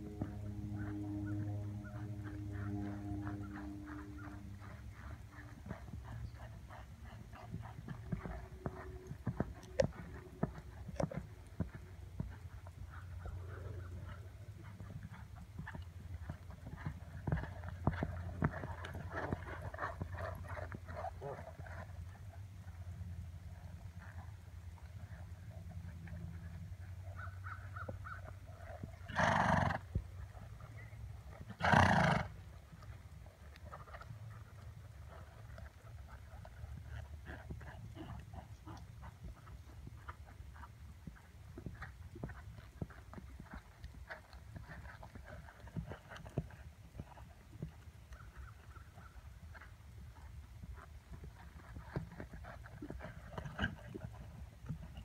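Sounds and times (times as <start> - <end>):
horse hoofbeats on sand: 0.0 - 21.9, 35.0 - 55.0
horse snorting: 29.0 - 30.0, 31.5 - 32.4.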